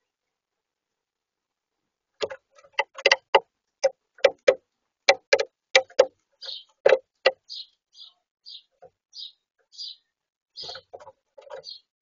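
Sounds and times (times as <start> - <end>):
soft high chirps: 10.6 - 10.9.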